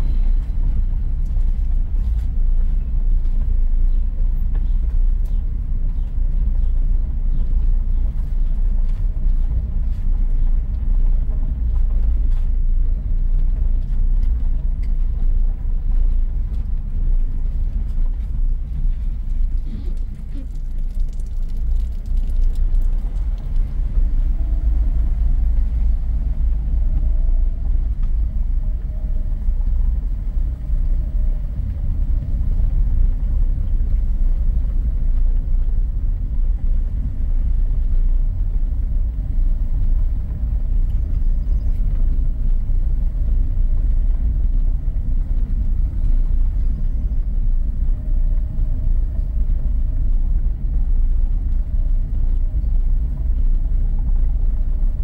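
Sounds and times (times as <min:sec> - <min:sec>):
car tyres rumbling on cobblestones: 0:00.0 - 0:55.0.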